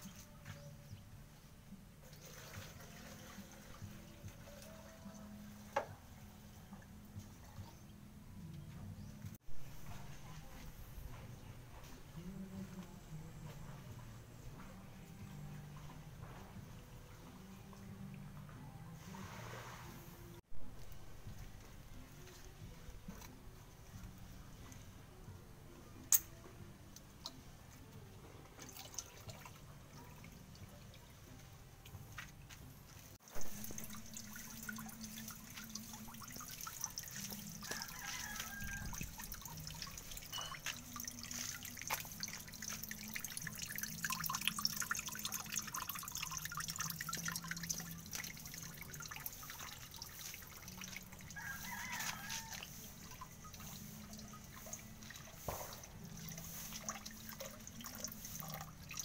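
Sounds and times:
water trickling and dripping: 0.0s - 7.9s, 26.1s - 59.0s.

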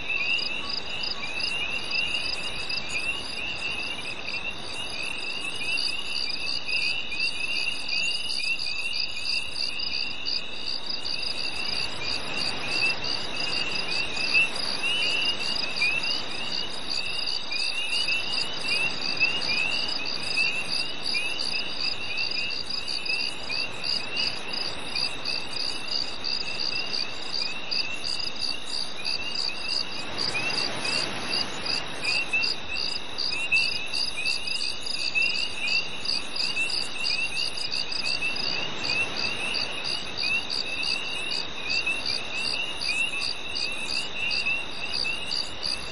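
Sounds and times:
crickets chirping: 0.0s - 45.9s.

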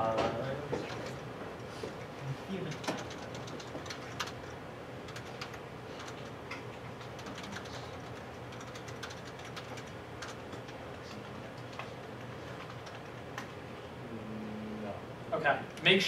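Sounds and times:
low room hum: 0.0s - 16.0s
keyboard keys clicking: 2.6s - 4.5s, 5.1s - 6.4s, 7.0s - 13.5s.

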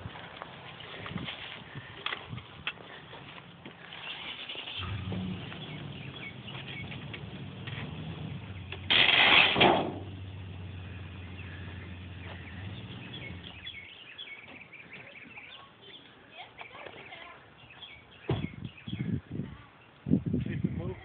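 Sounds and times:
truck engine running: 3.2s - 14.0s
car crashing down off stands: 8.7s - 10.2s.

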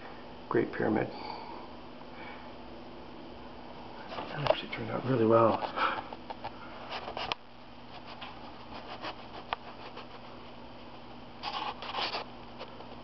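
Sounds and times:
steady low hum: 0.0s - 13.0s
scratching and rustling handling: 4.0s - 10.8s, 11.4s - 13.0s.

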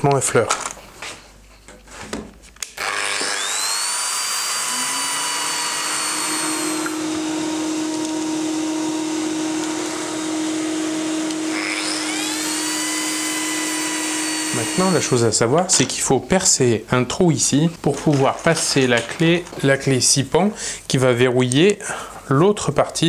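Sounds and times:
joining machine motor whine: 2.8s - 15.2s
dust extraction drone: 2.8s - 15.3s.

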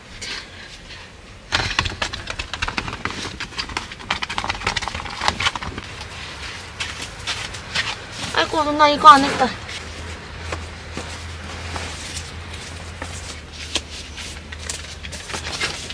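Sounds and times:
camping gear rustling and clattering: 0.0s - 15.9s.

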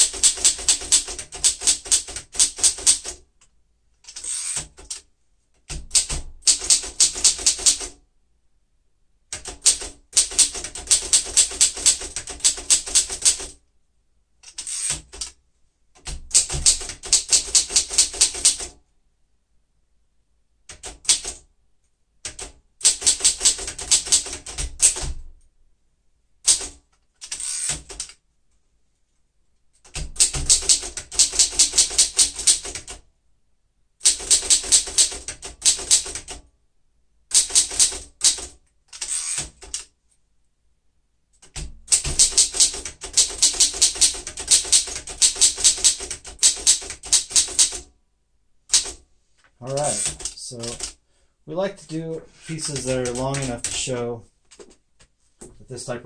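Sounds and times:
manual typewriter typing: 0.0s - 3.3s, 4.0s - 8.0s, 9.3s - 13.6s, 14.4s - 15.4s, 16.0s - 18.8s, 20.7s - 21.5s, 22.2s - 25.4s, 26.4s - 28.2s, 29.8s - 33.0s, 34.0s - 36.5s, 37.3s - 39.9s, 41.4s - 47.9s, 48.7s - 49.0s, 49.6s - 51.0s, 52.4s - 54.1s.

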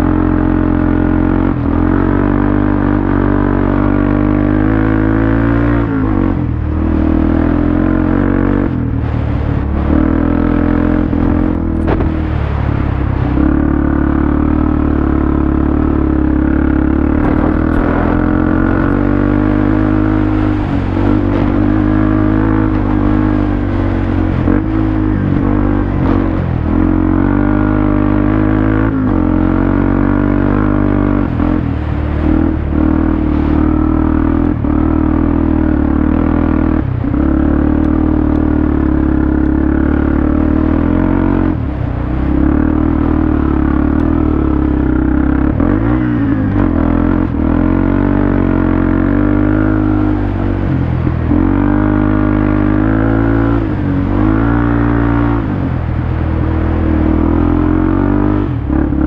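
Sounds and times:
off-road vehicle engine revving: 0.0s - 59.0s.

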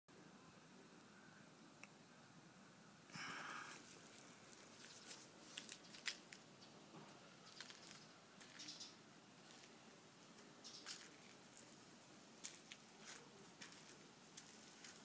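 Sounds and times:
soft rustle: 3.7s - 6.7s, 7.4s - 15.0s.

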